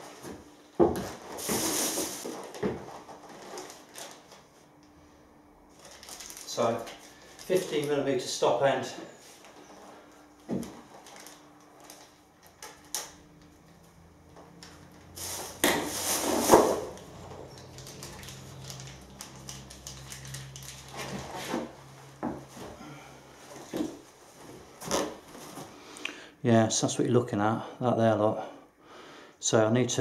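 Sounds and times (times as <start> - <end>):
plastic bag rustling: 1.0 - 4.5, 5.7 - 8.4, 9.3 - 12.9, 15.1 - 25.8.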